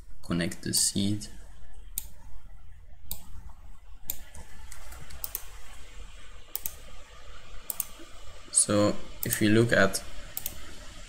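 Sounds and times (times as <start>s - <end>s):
low steady hum: 0.0s - 11.0s
computer mouse clicks: 1.7s - 2.3s, 3.1s - 5.8s, 6.5s - 6.9s, 7.6s - 8.1s, 9.2s - 9.5s, 10.3s - 10.8s.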